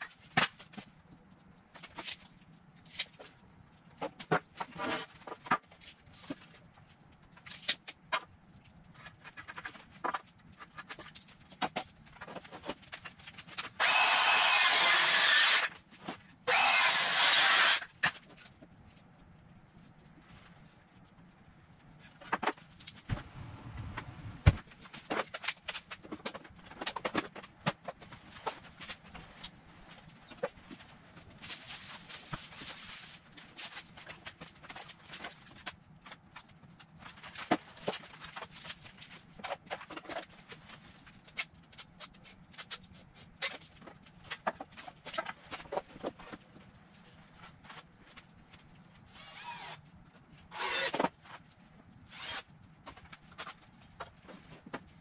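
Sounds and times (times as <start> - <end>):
rough rubbing of wood: 52.1 - 52.4.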